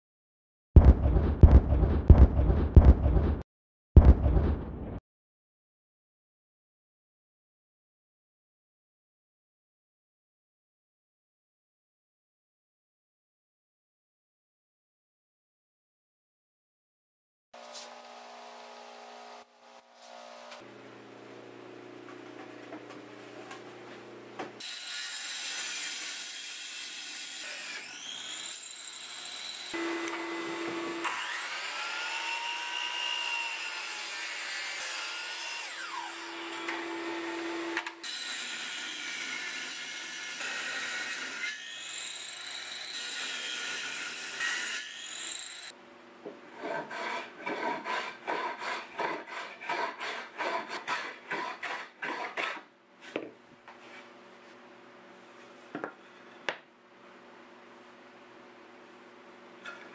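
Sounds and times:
power saws cutting wood: 24.6s - 45.8s, 46.5s - 52.7s.

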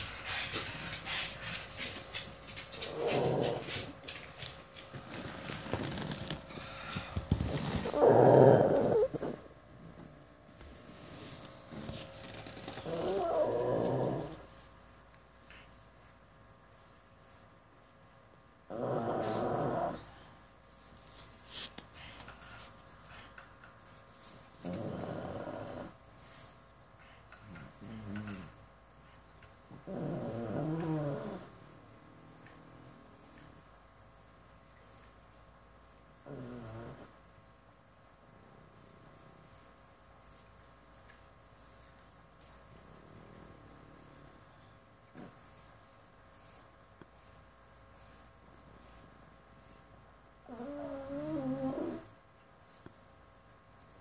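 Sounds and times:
dog snoring: 2.8s - 3.9s, 7.3s - 9.5s, 11.7s - 14.4s, 18.7s - 20.2s, 24.6s - 26.0s, 29.6s - 33.5s, 36.2s - 37.2s, 50.4s - 52.1s
soft dog breathing: 19.0s - 54.0s.

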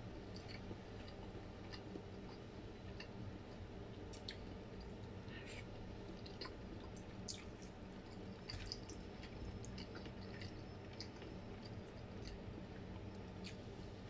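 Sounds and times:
person chewing wetly: 0.2s - 13.9s.

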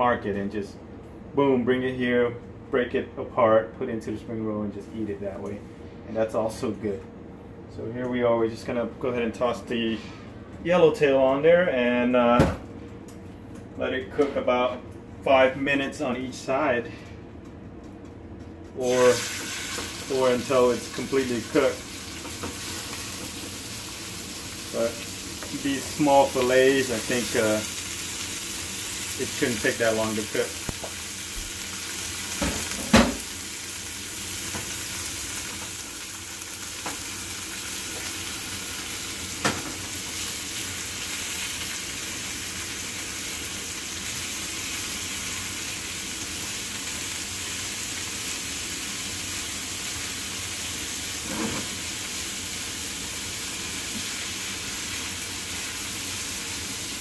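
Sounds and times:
fish sizzling in a frying pan: 18.8s - 57.0s.

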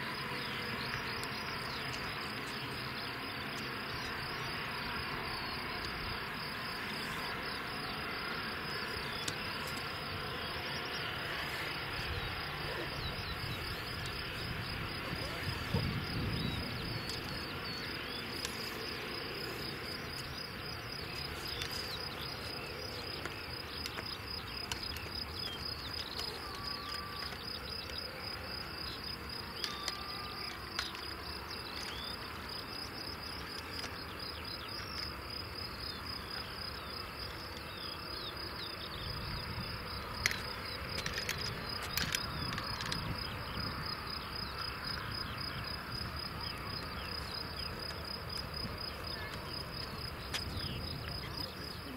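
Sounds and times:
jet engines rumbling: 0.0s - 29.0s
crickets chirping: 0.0s - 51.9s.

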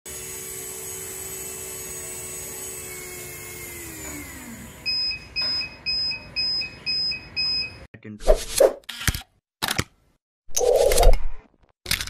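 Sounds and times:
buzzer beeping: 4.8s - 7.9s.

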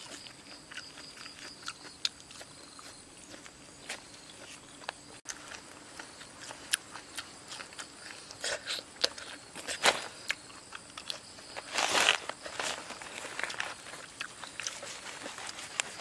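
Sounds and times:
rustling: 11.4s - 16.0s.

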